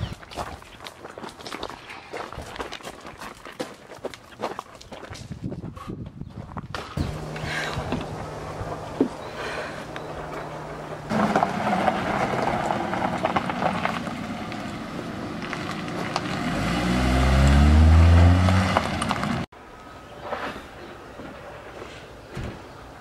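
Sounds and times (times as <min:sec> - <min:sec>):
tyres crunching on gravel: 0:00.0 - 0:05.7, 0:06.4 - 0:19.5
car engine passing: 0:07.0 - 0:19.5.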